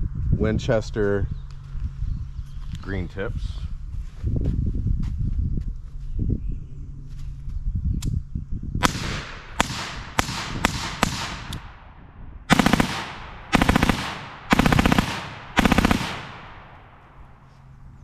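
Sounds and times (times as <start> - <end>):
suppressed rifle shots: 8.8 - 11.9, 12.5 - 17.2
full-auto rifle bursts: 12.5 - 17.1.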